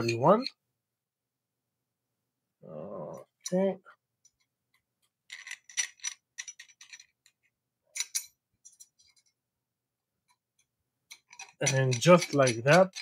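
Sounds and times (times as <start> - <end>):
metal profiles clicking and rattling: 5.3 - 9.4, 11.1 - 13.0
screwdriver turning screws: 11.1 - 13.0.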